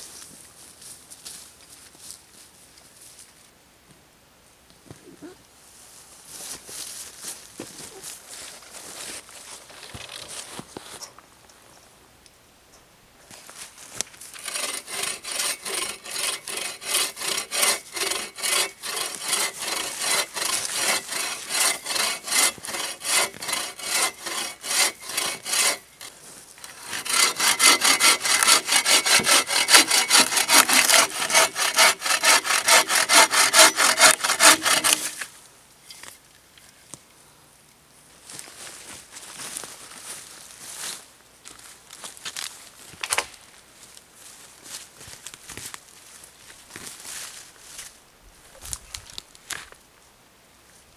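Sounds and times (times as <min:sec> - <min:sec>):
bow saw cutting log: 0:14.3 - 0:35.3.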